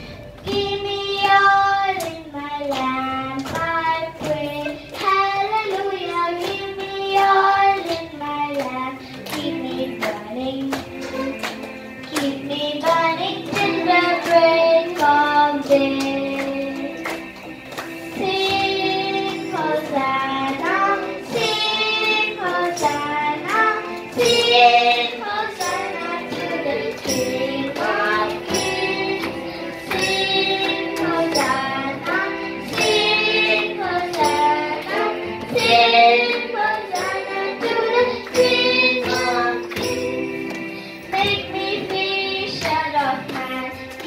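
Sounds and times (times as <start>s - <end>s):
girl singing into a microphone: 0.4s - 11.5s, 12.2s - 16.8s, 18.2s - 29.3s, 29.9s - 40.2s, 40.9s - 44.0s.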